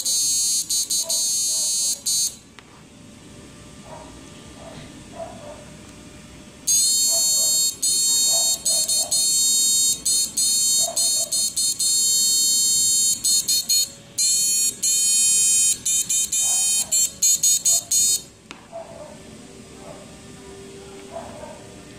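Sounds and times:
high-pitched electronic whine: 6.6s - 18.3s.

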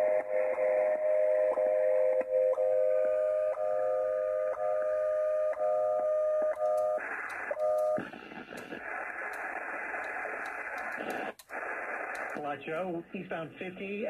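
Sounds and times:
radio static hiss: 6.0s - 14.0s
clicks: 6.4s - 12.4s.

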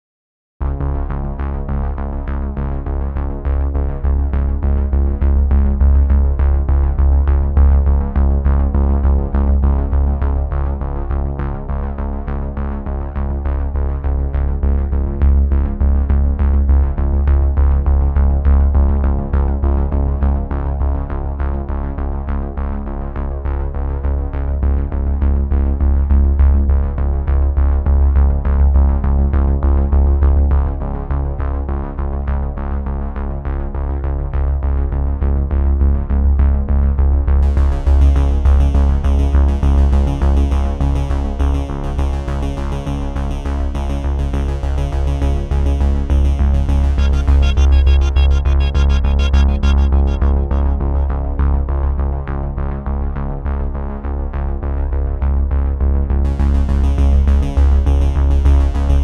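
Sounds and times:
heavy bass line: 0.6s - 31.4s, 33.3s - 59.0s
synthesizer soundtrack music: 43.9s - 52.1s.

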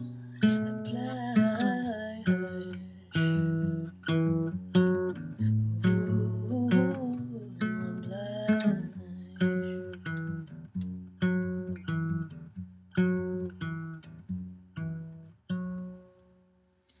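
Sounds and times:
woman singing: 0.0s - 3.6s, 5.6s - 9.9s
fingerpicked classical guitar: 0.0s - 16.6s.

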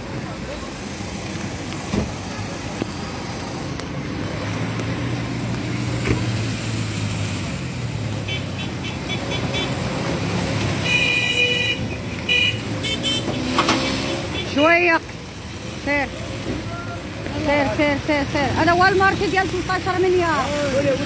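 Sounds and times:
car horn beeping: 8.2s - 9.8s, 10.8s - 14.8s.

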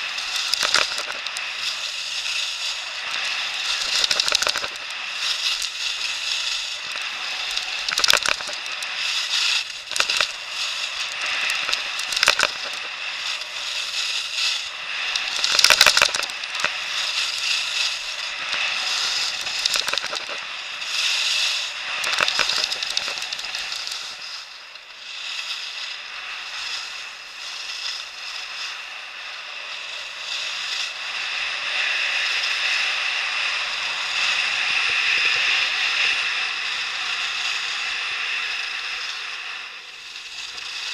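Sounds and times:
crackling ski scrapes: 0.0s - 29.1s
skis scraping on snow: 0.0s - 38.1s.

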